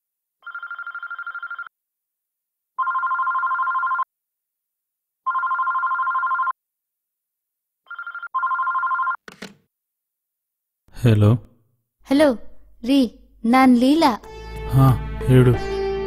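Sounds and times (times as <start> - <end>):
telephone ringing: 0.4 - 1.7, 2.8 - 4.1, 5.2 - 6.6, 7.9 - 9.4.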